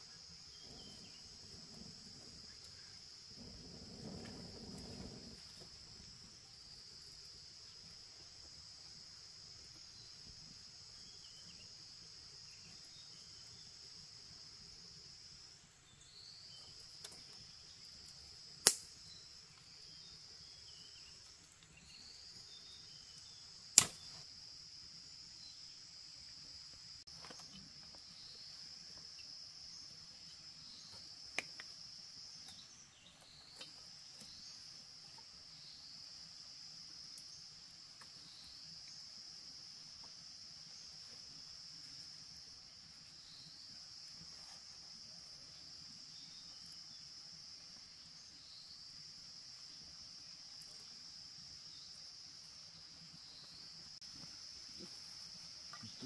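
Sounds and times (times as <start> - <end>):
insect chorus: 0.0 - 56.0
sharp cracks: 18.6 - 19.0, 23.7 - 24.1.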